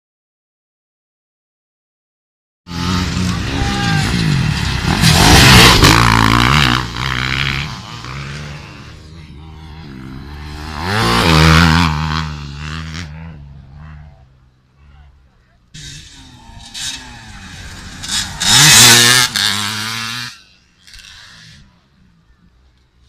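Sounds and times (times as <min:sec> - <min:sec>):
dirt bikes revving past: 0:02.7 - 0:14.9, 0:15.7 - 0:22.2.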